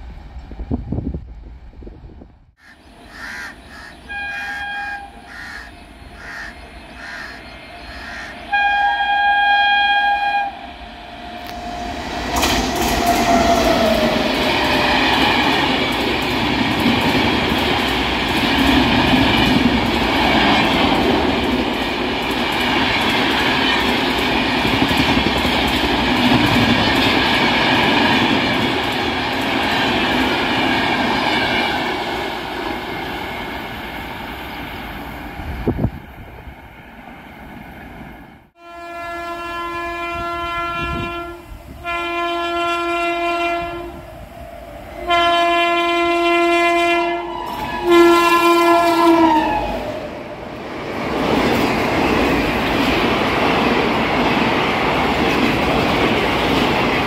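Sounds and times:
train wheels rumbling on rail: 0.0 - 9.2, 9.9 - 57.0
train horn blasts: 3.8 - 5.6, 7.9 - 12.2, 38.6 - 44.1, 45.0 - 49.8
clickety-clack over rail joints: 11.5 - 33.5, 50.6 - 57.0.

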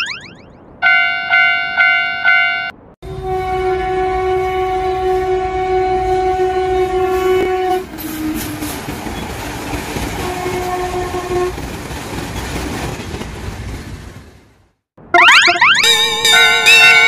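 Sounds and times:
train horn blasts: 0.8 - 8.7, 10.2 - 11.5
train rumble and wheel clatter: 2.8 - 14.7.

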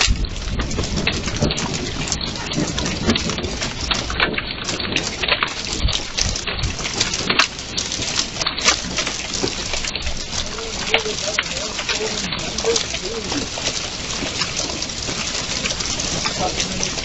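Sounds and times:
hail clattering on wooden deck: 0.0 - 17.0
steady hiss of rain: 0.0 - 17.0.

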